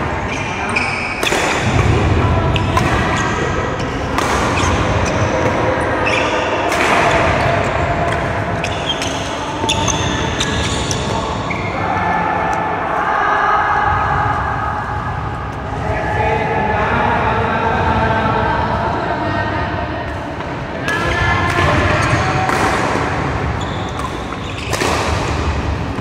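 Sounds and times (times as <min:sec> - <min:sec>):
shoe squeaks: 0:00.2 - 0:01.3, 0:04.6 - 0:06.6, 0:08.6 - 0:11.8, 0:23.6 - 0:24.8
racket striking shuttlecock: 0:01.1 - 0:11.1, 0:20.9 - 0:23.3.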